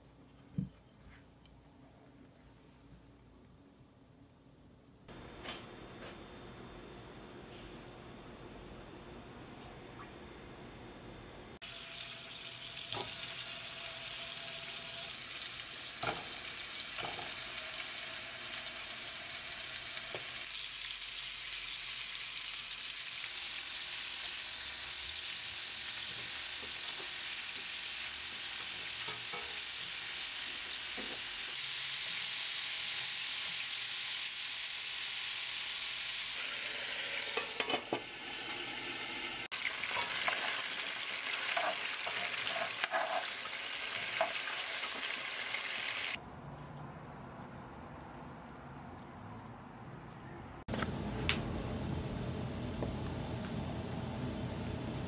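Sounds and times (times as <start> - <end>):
meatballs sizzling in oil: 11.6 - 46.2.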